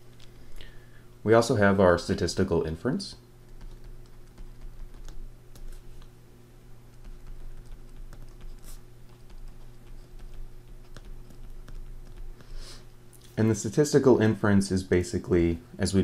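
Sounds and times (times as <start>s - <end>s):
low electrical hum: 0.0s - 16.0s
pen tapping and scratching tablet: 3.5s - 5.8s, 6.9s - 12.5s.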